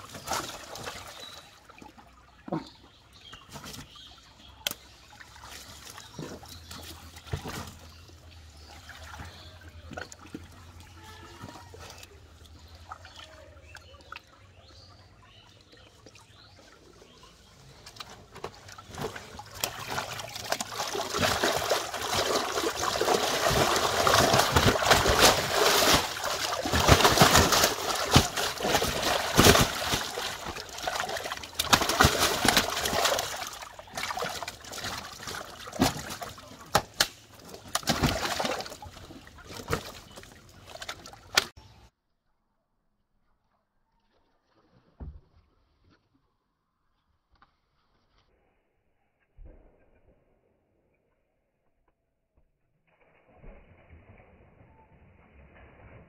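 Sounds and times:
fish splashing in water: 0:00.0 - 0:02.1, 0:17.3 - 0:41.6
water trickling: 0:00.0 - 0:36.6.

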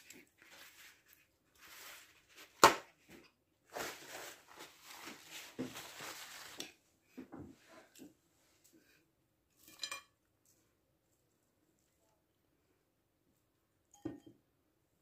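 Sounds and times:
rustling and shuffling: 0:00.0 - 0:08.9.

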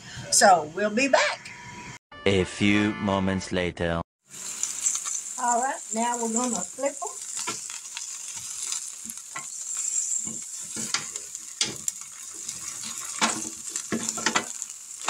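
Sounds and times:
steaks sizzling on a grill: 0:04.3 - 0:15.0
metal fork scraping grill pan: 0:06.0 - 0:14.7.

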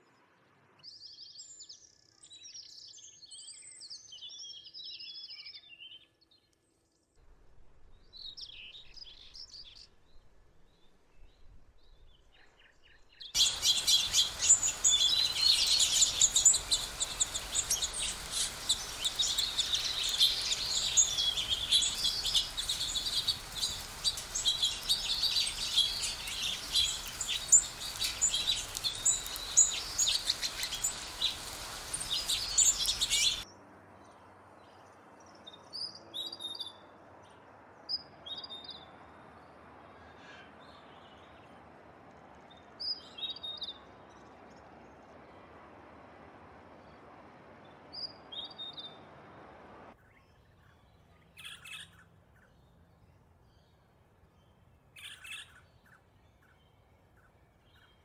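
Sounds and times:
songbirds chirping: 0:00.0 - 0:58.0
steady background hiss: 0:13.4 - 0:35.2.

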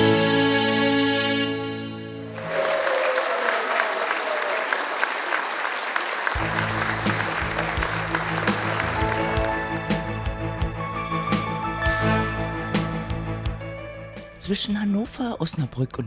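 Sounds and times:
soft instrumental music: 0:00.0 - 0:02.2, 0:06.4 - 0:16.0
audience applauding: 0:02.2 - 0:10.5
sung song ending: 0:06.4 - 0:13.8.

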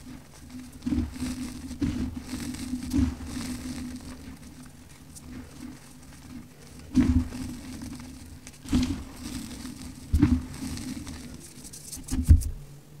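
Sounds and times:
hands crunching compacted powder: 0:00.0 - 0:12.2
sifting powder: 0:00.0 - 0:12.5.

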